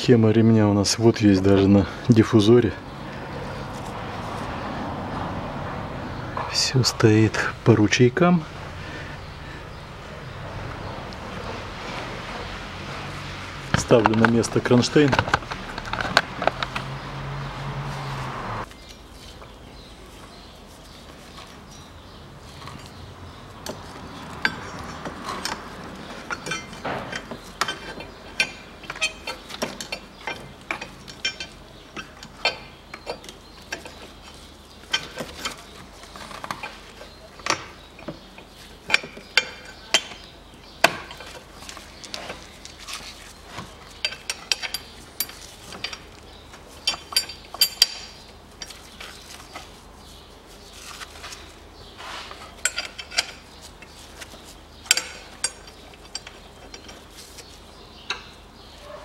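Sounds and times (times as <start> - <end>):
wrench and metal bracket clinking: 24.4 - 34.0, 44.0 - 49.1, 52.3 - 54.0, 54.8 - 57.2.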